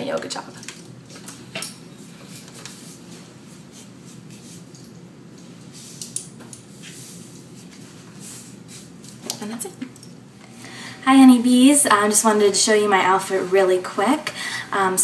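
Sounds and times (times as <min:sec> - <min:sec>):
rustling and shuffling: 0:00.6 - 0:09.5.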